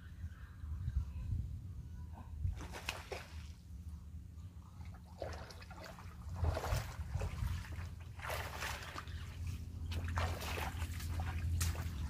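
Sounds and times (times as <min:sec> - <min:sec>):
person wading through water: 0:04.8 - 0:12.0.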